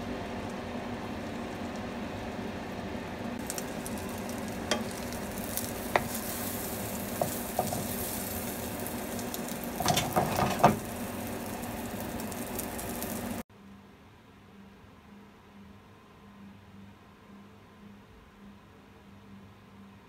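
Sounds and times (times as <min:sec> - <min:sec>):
egg sizzling in a frying pan: 0:00.0 - 0:13.5
spatula tapping and scraping pan: 0:05.9 - 0:06.3, 0:07.2 - 0:08.1, 0:09.8 - 0:10.8.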